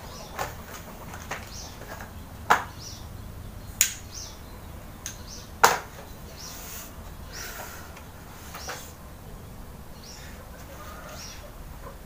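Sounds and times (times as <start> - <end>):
sharp snaps: 3.7 - 4.4, 5.0 - 6.5.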